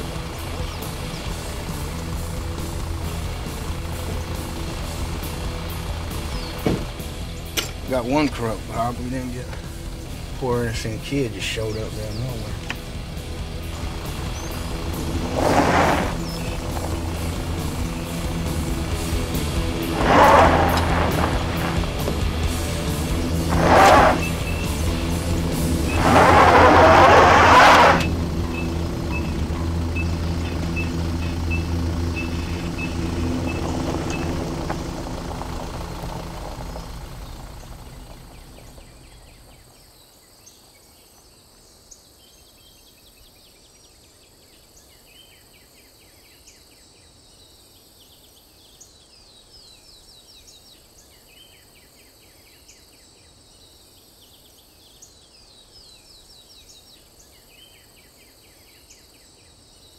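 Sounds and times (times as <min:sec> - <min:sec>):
vehicle engine running: 0:00.0 - 0:39.8
insects chirping: 0:09.6 - 0:59.9.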